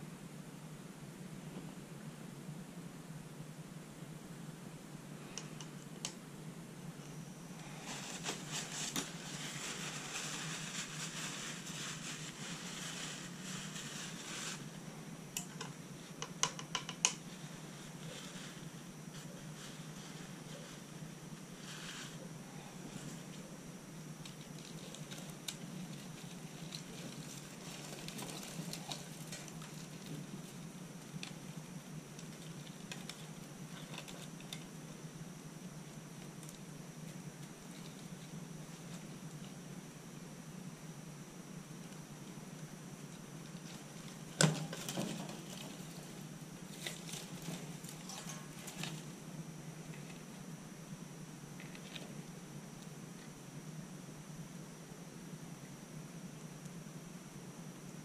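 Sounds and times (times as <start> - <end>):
steady low hum: 0.0 - 58.0
rustling and scraping: 7.0 - 34.7, 36.1 - 39.6, 43.0 - 50.5.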